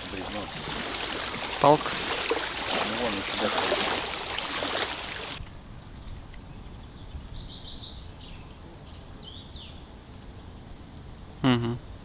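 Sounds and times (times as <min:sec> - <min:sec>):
low outdoor background noise: 0:00.0 - 0:12.0
small songbird singing: 0:06.2 - 0:09.8.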